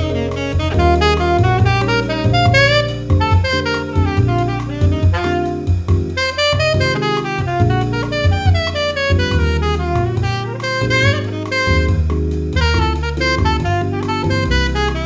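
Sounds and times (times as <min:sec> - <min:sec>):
drum kit: 0:00.0 - 0:15.0
low bass line: 0:00.0 - 0:15.0
saxophone playing jazz melody: 0:00.0 - 0:15.0.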